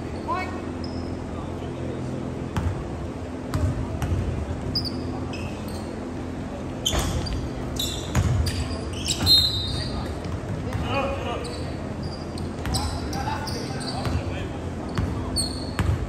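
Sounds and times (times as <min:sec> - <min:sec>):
sneakers squeaking: 0:00.0 - 0:01.4, 0:02.5 - 0:16.0
steady low hum: 0:00.0 - 0:16.0
basketball bouncing on wooden floor: 0:08.1 - 0:08.4, 0:15.8 - 0:16.0.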